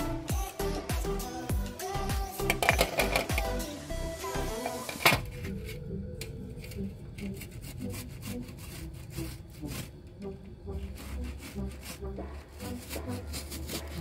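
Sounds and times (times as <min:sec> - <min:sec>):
fruit rasping on metal grater: 0:07.2 - 0:10.0, 0:10.7 - 0:14.0.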